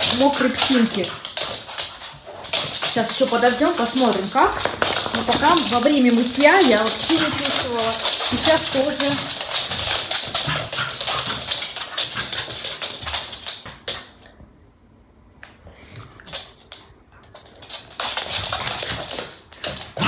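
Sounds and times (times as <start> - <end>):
dog noises: 0.0 - 14.2
dog claws clattering on floor: 0.0 - 14.4, 16.2 - 20.0.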